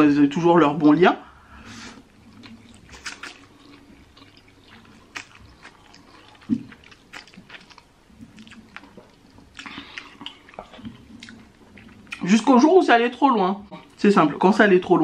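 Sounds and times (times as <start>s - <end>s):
wet chewing and slurping: 1.8s - 12.3s.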